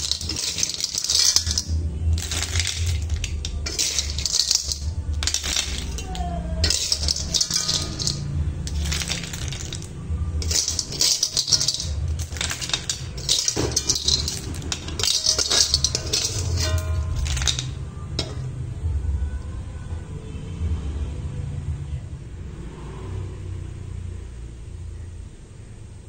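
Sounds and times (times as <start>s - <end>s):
shells rattling against metal wok: 0.0s - 18.6s.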